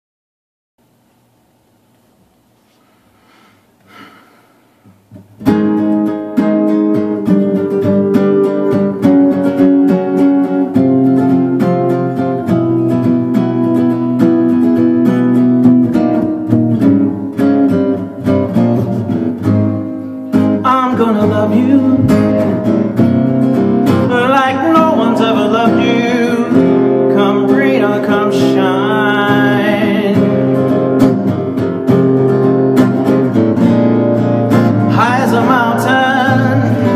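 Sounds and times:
acoustic guitar strumming blues: 4.0 - 36.9
man singing: 20.4 - 22.8, 23.9 - 30.7, 34.8 - 36.9.

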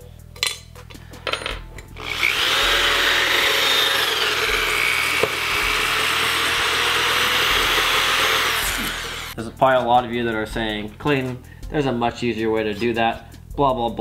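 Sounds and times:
electric drill boring into metal: 2.0 - 9.4.

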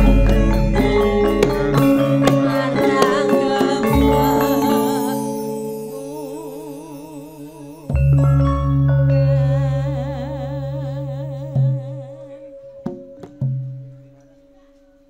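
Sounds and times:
drum strokes: 0.0 - 5.6, 12.7 - 14.2
band music with wavering melody: 0.0 - 15.0.

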